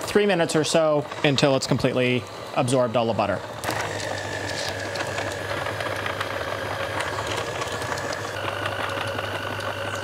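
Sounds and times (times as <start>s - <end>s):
stand mixer motor hum and whine: 0.0s - 10.0s.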